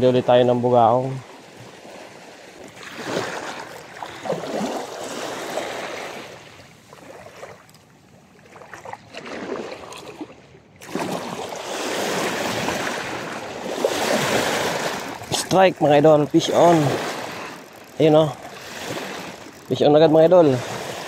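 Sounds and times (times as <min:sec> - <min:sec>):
water lapping at the shore: 0:00.0 - 0:21.0
loud water rush: 0:10.8 - 0:19.4.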